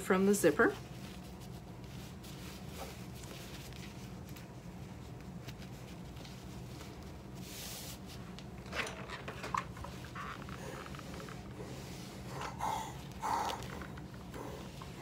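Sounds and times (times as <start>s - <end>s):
steady low hum: 0.0s - 15.0s
fabric rustling and sliding: 0.7s - 8.6s.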